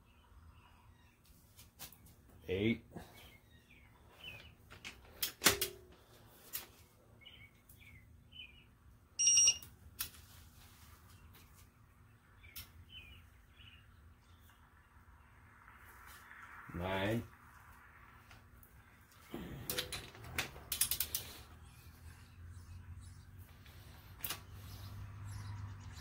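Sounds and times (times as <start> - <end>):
short electronic beep: 9.2 - 9.6.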